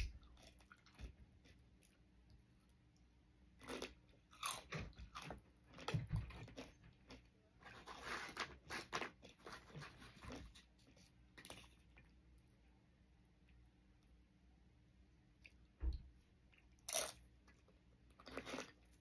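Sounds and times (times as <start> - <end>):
crunching tortilla chips: 3.6 - 12.1, 18.1 - 19.0.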